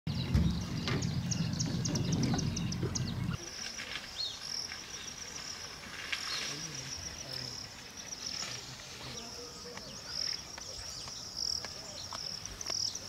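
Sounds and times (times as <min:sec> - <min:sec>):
low rumble: 0:00.1 - 0:03.4
gliding bird calls: 0:00.2 - 0:11.2
high insect trill: 0:03.4 - 0:13.0.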